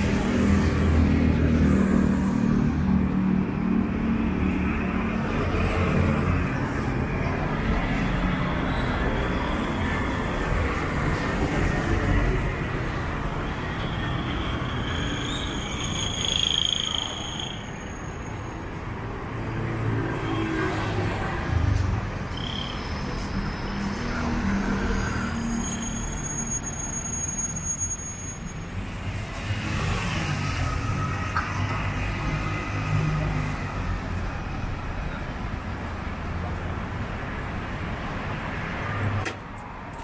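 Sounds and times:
rumble of passing cars: 0:00.0 - 0:40.0.

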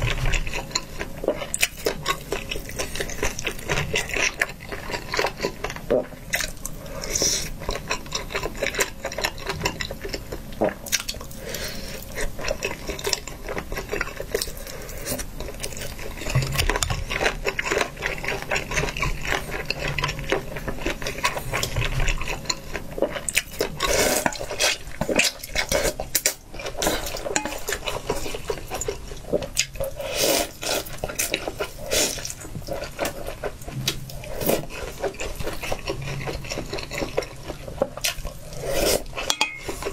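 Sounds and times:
chewing: 0:00.0 - 0:39.9
metal ladle clinking on bowl: 0:39.3 - 0:39.8.

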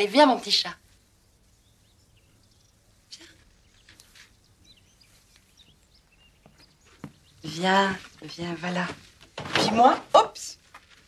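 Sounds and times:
faint bird chirps: 0:01.0 - 0:08.4.

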